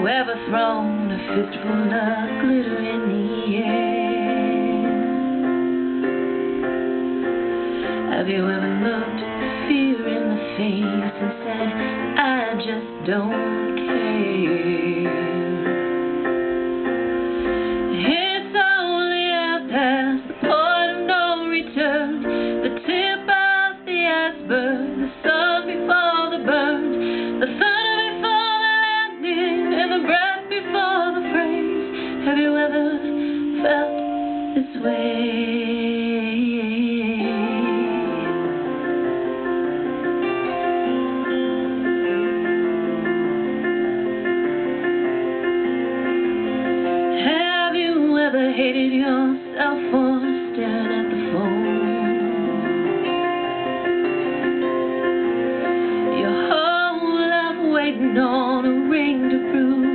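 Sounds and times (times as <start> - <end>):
woman singing a pop ballad: 0.0 - 5.6, 7.7 - 16.2, 17.6 - 39.2, 46.8 - 53.6, 55.7 - 59.9
instrumental backing track: 0.0 - 59.9.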